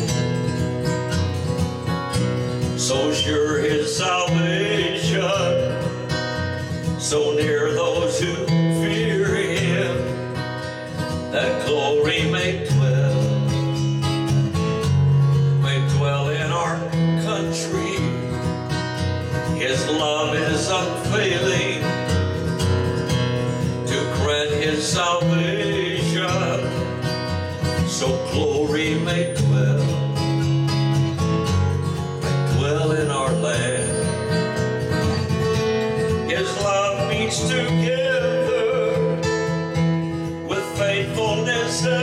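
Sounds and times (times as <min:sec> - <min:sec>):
acoustic guitar strummed: 0:00.0 - 0:42.0.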